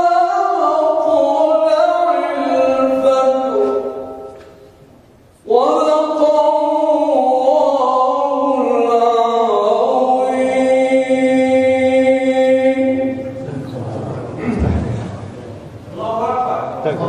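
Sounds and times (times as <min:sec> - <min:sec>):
man chanting melodically: 0:00.0 - 0:04.6, 0:05.4 - 0:17.0.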